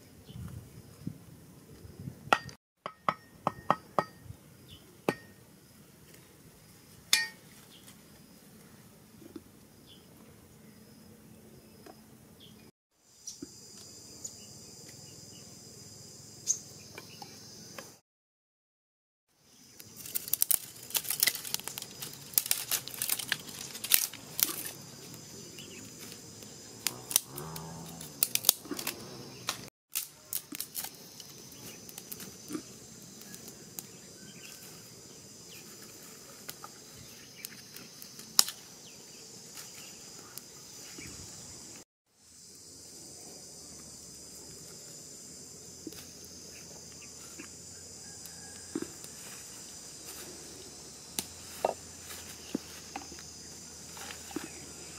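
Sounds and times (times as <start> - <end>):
insect chorus: 3.1 - 18.0, 19.4 - 54.9
sticks snapping and leaves crinkling: 19.7 - 32.6, 37.4 - 38.7, 48.2 - 53.3.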